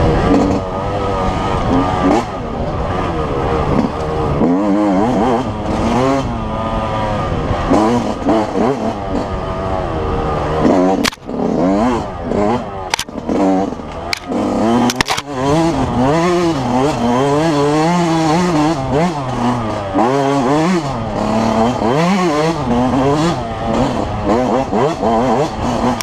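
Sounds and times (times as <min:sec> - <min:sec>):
two-stroke motorcycle engine revving: 0:00.0 - 0:26.0
sharp clicks: 0:11.0 - 0:11.3, 0:12.9 - 0:13.2, 0:13.9 - 0:15.3.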